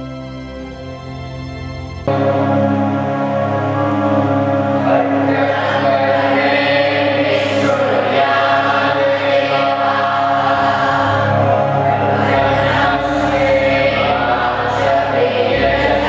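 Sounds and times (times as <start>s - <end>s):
steady low tones: 0.0s - 16.0s
women singing in unison: 4.8s - 16.0s.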